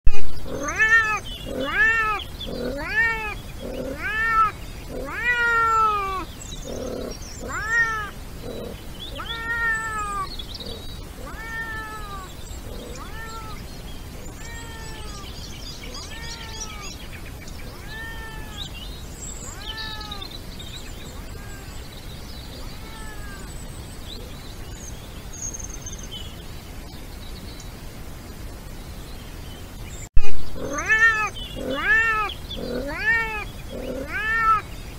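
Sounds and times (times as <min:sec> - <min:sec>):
wildcat meowing: 0:00.4 - 0:17.0, 0:17.7 - 0:18.8, 0:19.4 - 0:20.3, 0:20.9 - 0:21.8, 0:22.5 - 0:23.6, 0:30.6 - 0:34.7.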